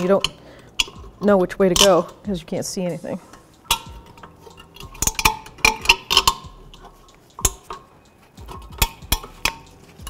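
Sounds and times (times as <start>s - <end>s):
pliers clicking on metal spring: 0.0s - 2.3s, 3.3s - 10.0s.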